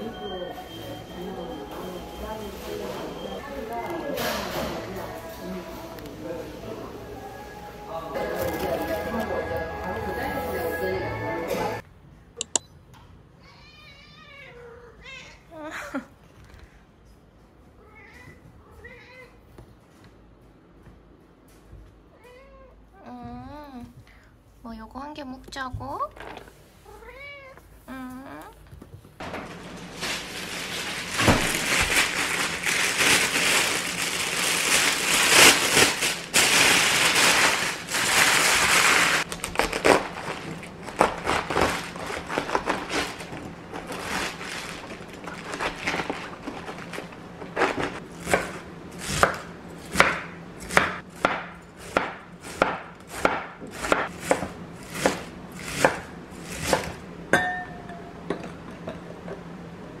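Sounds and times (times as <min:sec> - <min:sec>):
crackling noise: 0:29.7 - 0:48.0
knife cutting cabbage: 0:39.3 - 0:44.4, 0:47.4 - 0:57.0.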